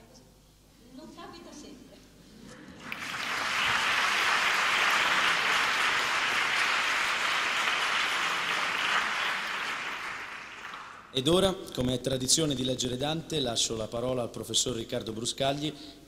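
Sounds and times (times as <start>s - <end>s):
audience applauding: 2.8s - 11.1s.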